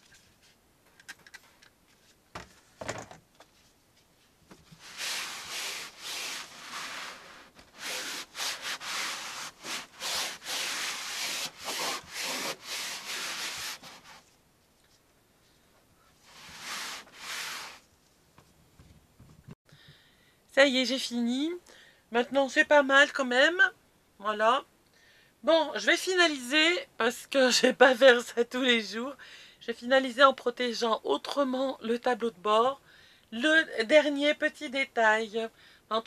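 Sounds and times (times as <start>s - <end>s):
cloth rubbing plastic dashboard: 4.5s - 14.3s, 16.2s - 17.8s.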